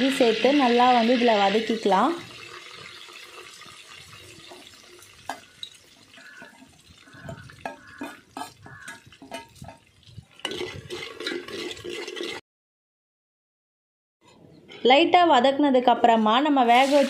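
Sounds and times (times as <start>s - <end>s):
spices sizzling in hot oil: 0.0s - 12.3s, 16.6s - 17.0s.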